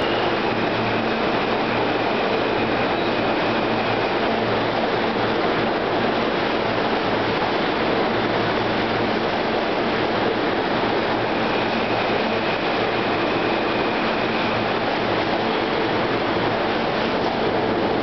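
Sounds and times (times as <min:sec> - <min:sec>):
faint high whine: 0:00.0 - 0:04.2
subway train rolling past: 0:00.0 - 0:18.0.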